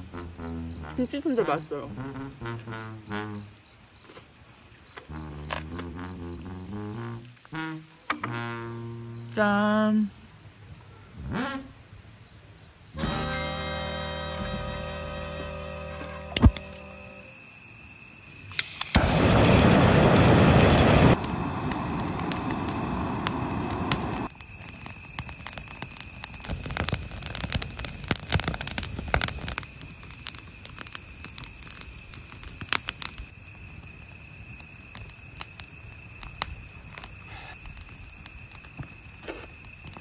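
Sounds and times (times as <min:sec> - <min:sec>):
wood fire crackling: 0:14.0 - 0:17.5, 0:18.6 - 0:40.0
gas torch flame blasting: 0:18.5 - 0:24.3.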